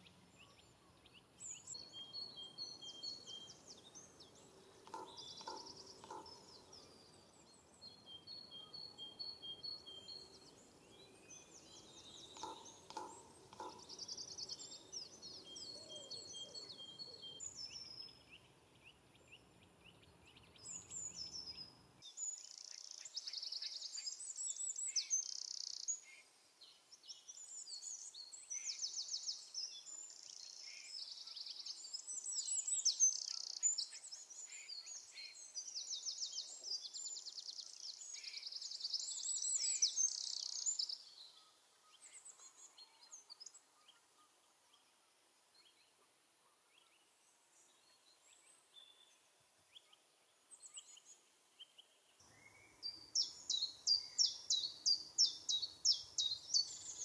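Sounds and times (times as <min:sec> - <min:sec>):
faint high bird chirps: 0:00.0 - 0:18.5
wrens singing trills: 0:01.2 - 0:18.2, 0:52.4 - 0:57.0.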